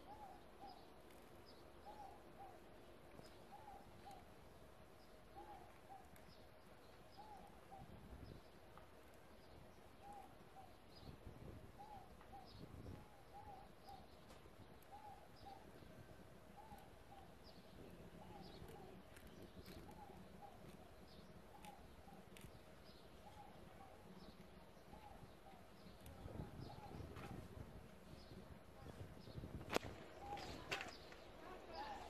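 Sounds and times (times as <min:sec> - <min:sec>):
bird calling: 0:00.0 - 0:04.4, 0:05.3 - 0:08.3, 0:11.8 - 0:15.9, 0:16.5 - 0:27.4, 0:29.7 - 0:32.0
faint high bird chirps: 0:14.8 - 0:32.0.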